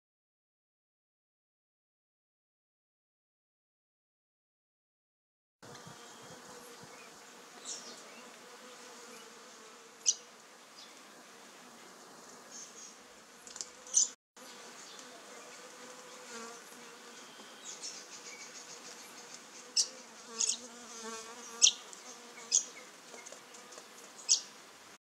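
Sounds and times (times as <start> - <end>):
wasp buzzing: 5.6 - 24.6.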